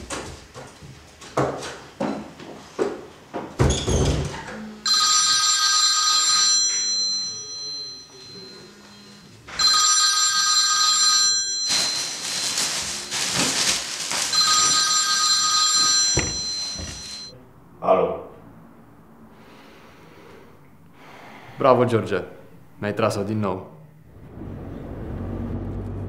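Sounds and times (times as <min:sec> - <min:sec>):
phone ringing: 0:04.8 - 0:12.5, 0:14.3 - 0:17.4.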